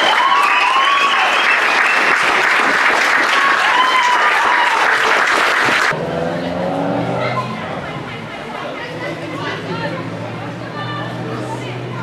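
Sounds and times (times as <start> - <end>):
crowd shouts: 0.0 - 2.2, 3.0 - 5.9
crowd applauding: 0.0 - 6.0.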